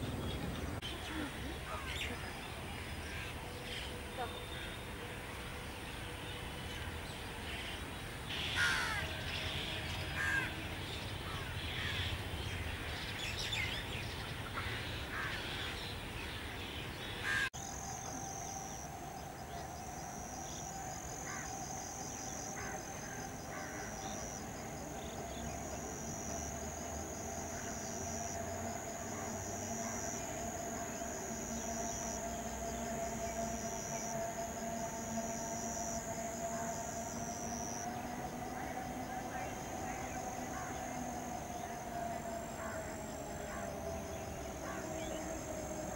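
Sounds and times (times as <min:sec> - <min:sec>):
elevated train whine: 0:00.0 - 0:45.9
crows cawing: 0:08.4 - 0:09.1, 0:10.2 - 0:10.6, 0:17.2 - 0:17.5.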